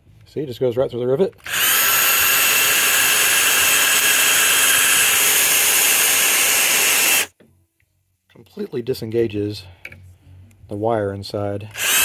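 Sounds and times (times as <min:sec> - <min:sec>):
handheld drill boring: 0:01.4 - 0:07.3, 0:11.7 - 0:12.0.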